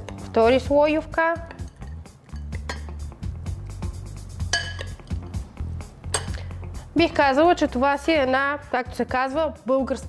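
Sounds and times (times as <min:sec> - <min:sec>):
background music with low bass: 0:00.0 - 0:10.0
metal spoon clinking on dishes: 0:01.4 - 0:03.0, 0:04.4 - 0:05.2, 0:06.0 - 0:06.4.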